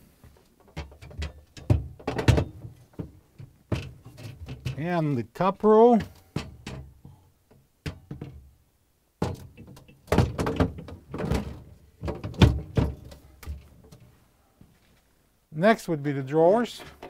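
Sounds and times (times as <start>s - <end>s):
refrigerator shelf knocking: 9.2s - 13.1s.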